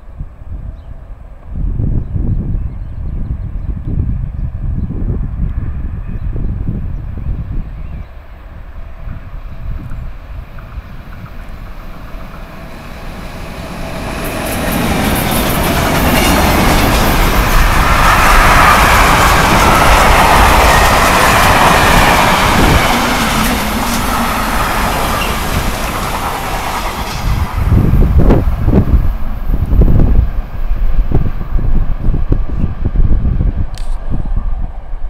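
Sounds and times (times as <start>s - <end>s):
freight train passing: 3.2s - 35.0s
train wheel clatter: 10.5s - 29.1s.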